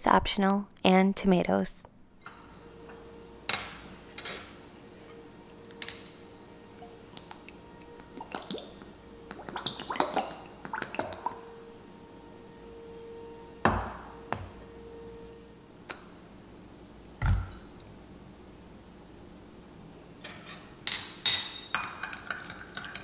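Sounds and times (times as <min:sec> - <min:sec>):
clinks of caps and glass: 0:20.2 - 0:21.9.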